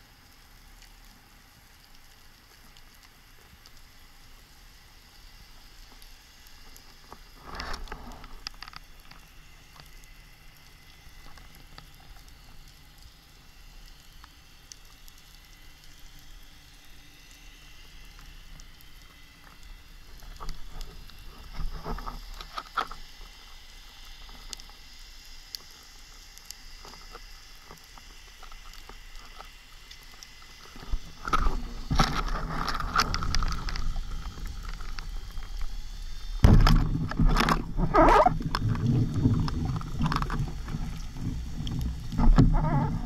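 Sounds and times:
underwater clicks: 28.5s - 43.0s
underwater rushing water: 29.3s - 43.0s.

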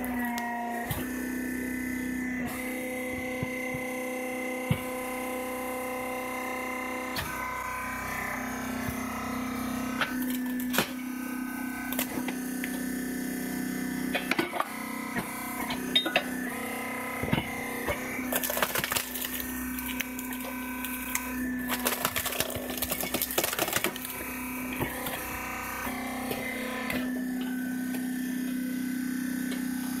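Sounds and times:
wood cracking and splintering: 17.9s - 25.1s.

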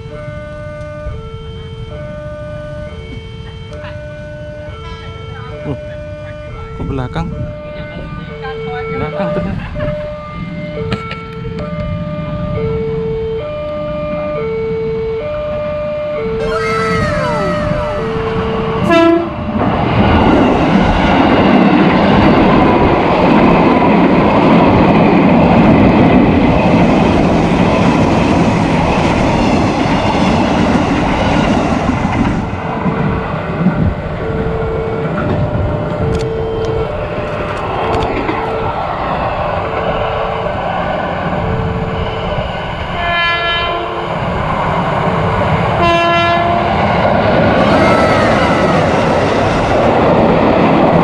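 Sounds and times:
level crossing alarm: 0.0s - 19.7s, 32.8s - 48.9s
train wheels rumbling and clicking: 6.2s - 12.3s, 17.0s - 43.0s, 43.9s - 51.0s
train horn blast: 16.9s - 19.6s, 42.9s - 44.2s, 45.8s - 46.8s.

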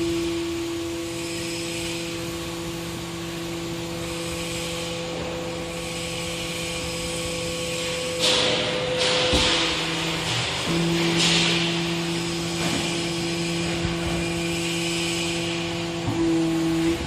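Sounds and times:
hydraulic power pack humming: 0.0s - 17.0s.

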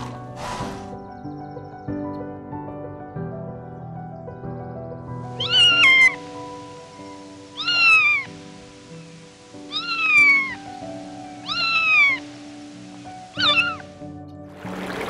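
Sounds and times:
soft background music: 0.0s - 15.0s
cat meowing: 5.4s - 6.2s, 7.6s - 8.3s, 9.7s - 10.7s, 11.4s - 12.3s, 13.3s - 13.9s.

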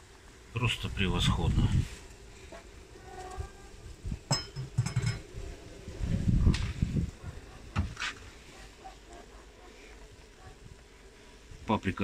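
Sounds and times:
metal clinks and knocks: 4.3s - 5.3s.

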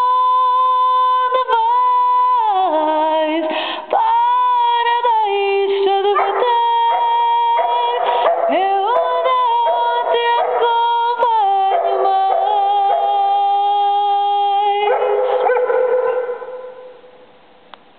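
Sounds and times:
dog howling: 6.2s - 17.1s.

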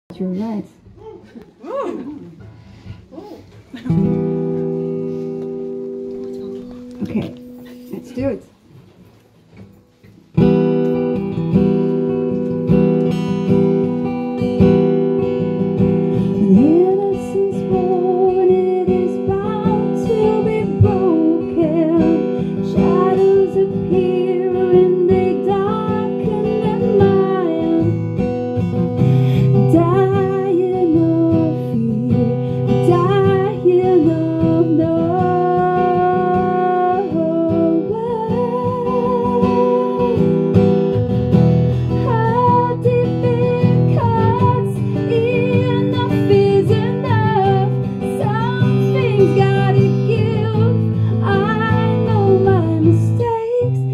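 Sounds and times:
acoustic guitar strumming: 1.9s - 53.9s
woman singing: 15.2s - 28.2s, 29.1s - 40.8s, 41.9s - 53.9s.

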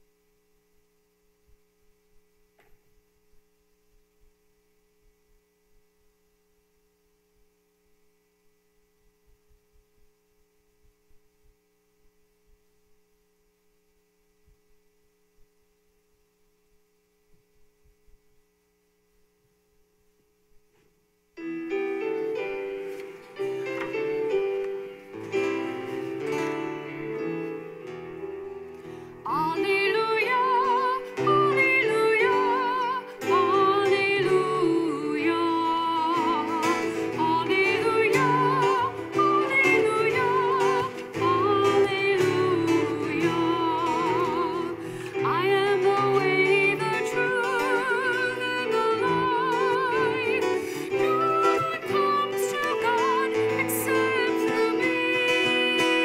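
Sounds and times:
faint steady hum: 0.0s - 56.0s
keyboard playing chords: 21.4s - 56.0s.

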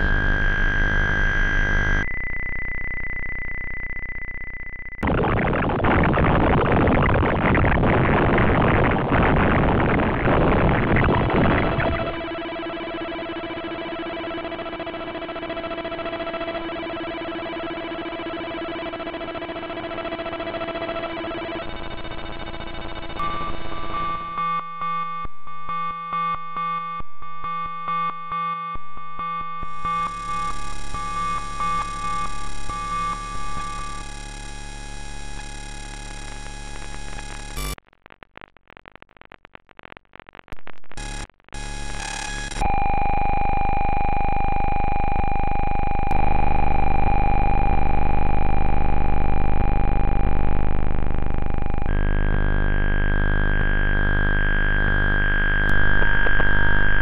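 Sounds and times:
stuttering electronic tones: 5.0s - 12.3s, 29.6s - 37.8s, 51.3s - 57.0s.

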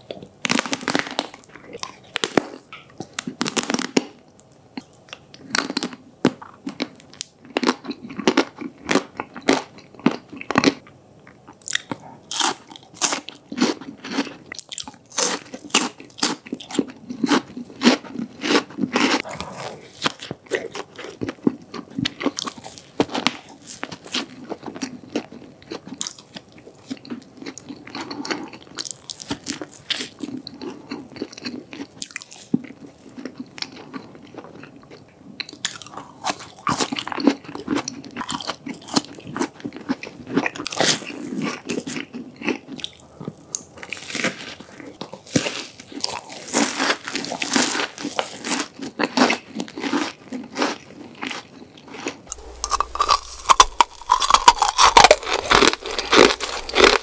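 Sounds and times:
soft chewing: 0.0s - 3.4s, 4.3s - 57.0s
crisp crunching bites: 0.4s - 4.1s, 11.6s - 32.5s, 43.8s - 57.0s.

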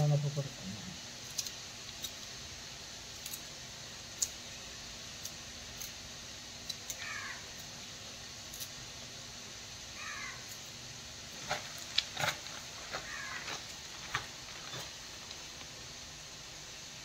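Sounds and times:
animal calls sliding down: 13.0s - 13.7s.

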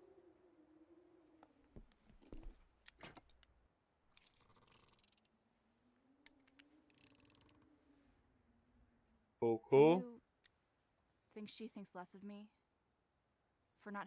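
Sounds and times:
wrench ratcheting: 4.2s - 5.3s, 6.5s - 7.6s.

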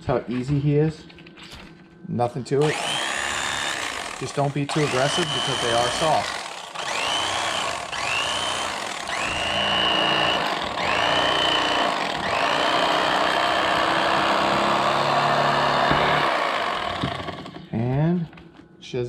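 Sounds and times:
electric knife motor whining: 2.6s - 17.6s.

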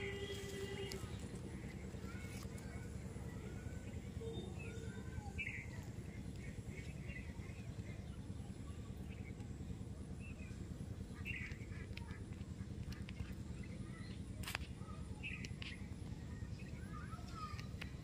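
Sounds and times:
small birds chirping: 0.0s - 18.0s
steady low rumble: 0.0s - 18.0s.

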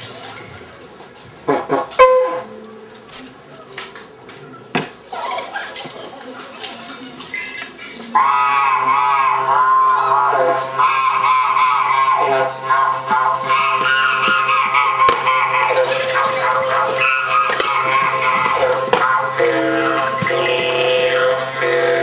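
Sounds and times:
loud music with wavering tone: 8.2s - 22.0s.

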